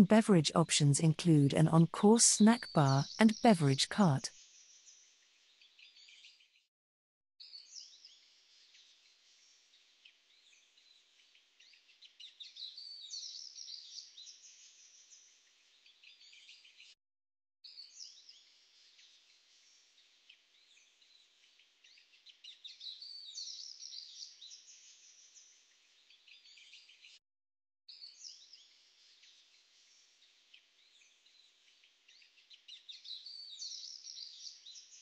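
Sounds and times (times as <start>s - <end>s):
small birds chirping: 11.7s - 16.9s, 20.6s - 27.2s, 27.9s - 35.0s.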